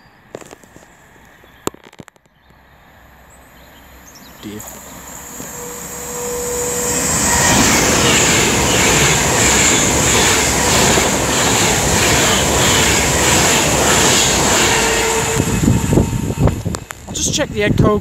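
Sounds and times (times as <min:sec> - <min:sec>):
electric train passing at speed: 0:02.4 - 0:18.0
rhythmic beat of train wheels: 0:04.7 - 0:17.4.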